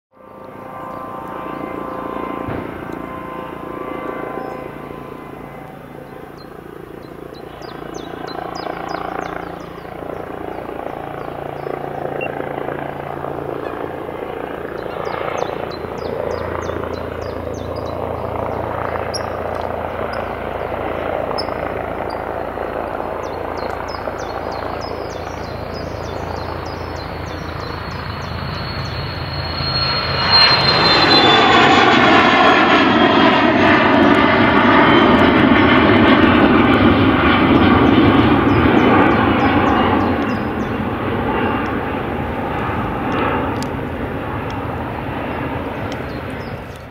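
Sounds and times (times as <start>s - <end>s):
jet engine whine falling in pitch: 0.1s - 46.9s
jet engine rumble: 0.2s - 46.9s.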